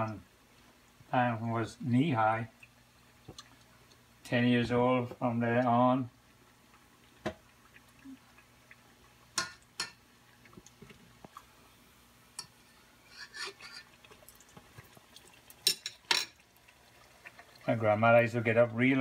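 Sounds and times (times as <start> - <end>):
utensils clinking on cookware: 15.6 - 16.4.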